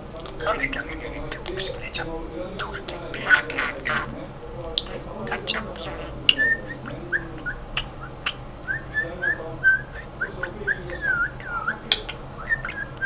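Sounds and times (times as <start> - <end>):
budgerigar clicks: 2.6 - 9.4, 10.4 - 13.0
budgerigar chirping: 2.6 - 13.0.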